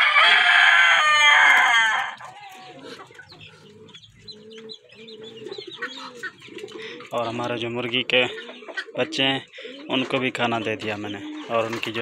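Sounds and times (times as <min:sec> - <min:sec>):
rooster crowing: 0:00.0 - 0:02.8
chickens clucking: 0:00.0 - 0:12.0.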